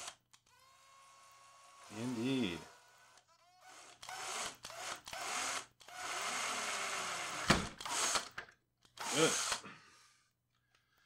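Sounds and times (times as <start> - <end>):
power drill boring into plastic: 0.0 - 9.6.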